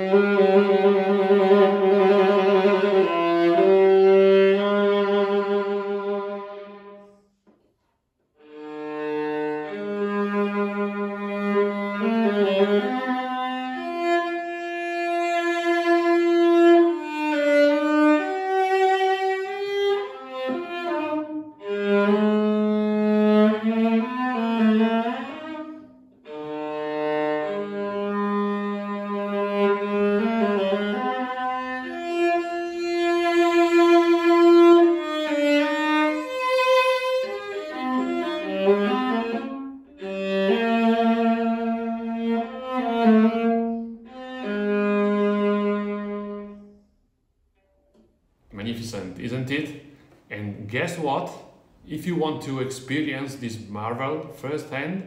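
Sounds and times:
bowed viola melody: 0:00.0 - 0:07.3, 0:08.4 - 0:46.9.

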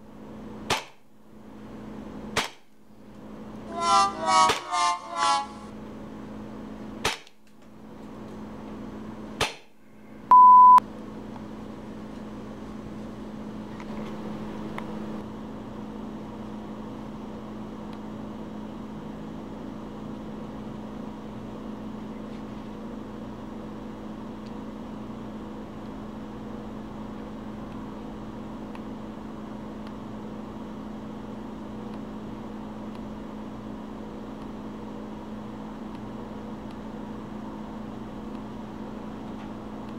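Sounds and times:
airsoft pistol shots: 0:02.4 - 0:02.7.

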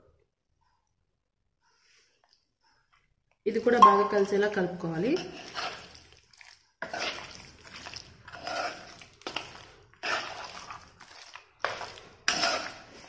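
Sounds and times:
hand squelching meat in marinade: 0:05.3 - 0:13.0.

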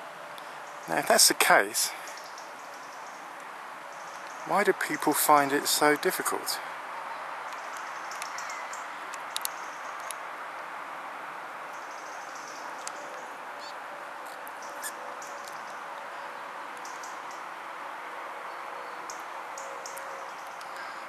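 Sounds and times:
distant road traffic: 0:00.0 - 0:21.0
small birds chirping: 0:02.0 - 0:03.3, 0:03.9 - 0:04.8, 0:07.1 - 0:10.2, 0:11.7 - 0:17.5.

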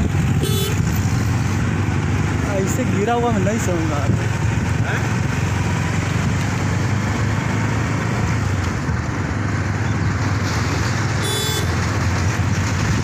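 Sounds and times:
vehicle engine and road noise: 0:00.0 - 0:13.0.

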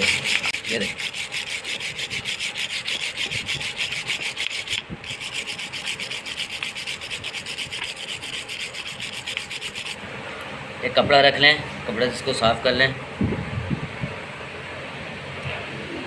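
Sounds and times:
wire brush scrubbing metal: 0:00.0 - 0:10.0.

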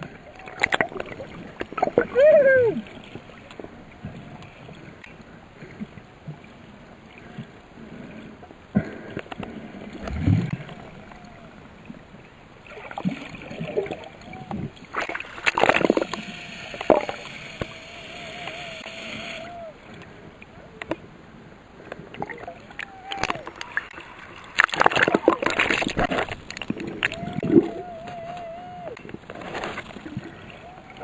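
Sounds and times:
underwater bubbling and splashing: 0:00.0 - 0:31.0
short wavering tones: 0:15.7 - 0:19.8, 0:27.0 - 0:29.0.

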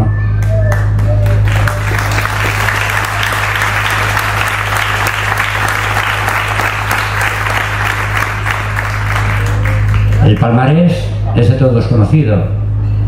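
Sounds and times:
steady low hum: 0:00.0 - 0:13.0
audience applauding: 0:00.4 - 0:10.8.

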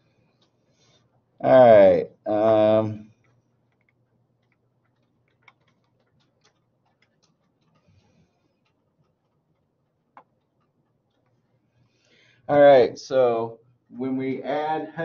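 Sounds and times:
faint small clicks: 0:03.0 - 0:11.9.

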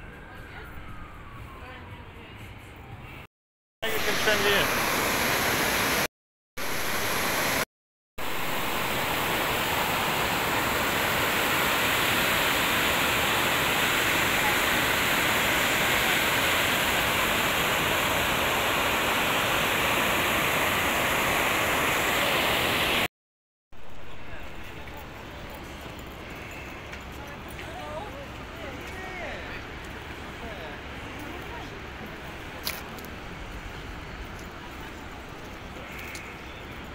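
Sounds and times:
water rushing over weir: 0:03.8 - 0:07.6, 0:08.2 - 0:23.1.

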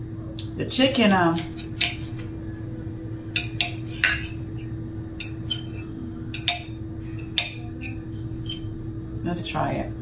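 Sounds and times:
knife and fork clinking on plate: 0:03.4 - 0:08.7.

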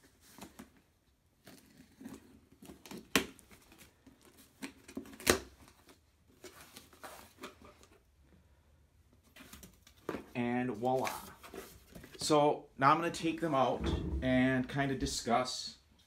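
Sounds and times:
scraping and rustling on cardboard: 0:01.4 - 0:08.0, 0:09.2 - 0:12.2.

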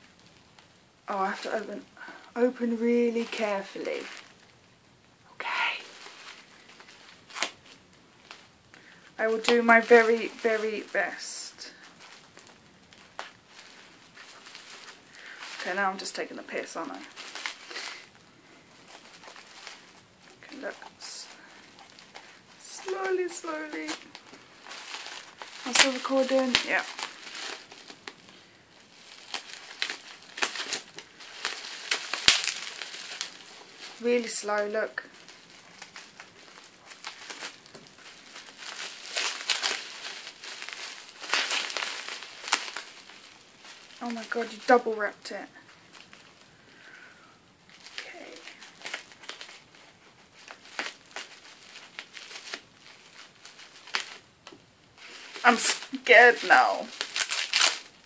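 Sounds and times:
bubble wrap crinkling: 0:00.0 - 0:58.0
bubble wrap snap: 0:05.6 - 0:16.2, 0:16.9 - 0:44.7, 0:47.7 - 0:58.0.

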